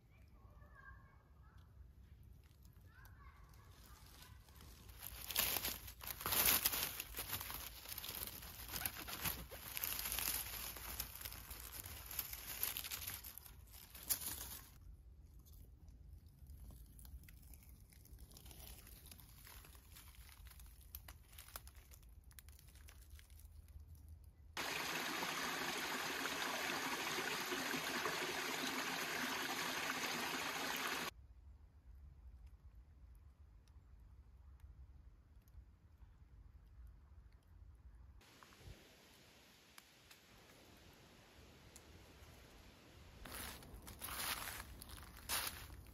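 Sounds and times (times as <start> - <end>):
leaf litter rustling and crunching: 3.4 - 14.8, 16.8 - 23.7, 43.2 - 45.9.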